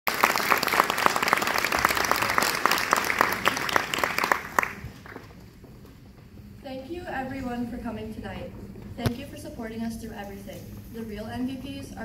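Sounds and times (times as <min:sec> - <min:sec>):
audience applauding: 0:00.0 - 0:05.4.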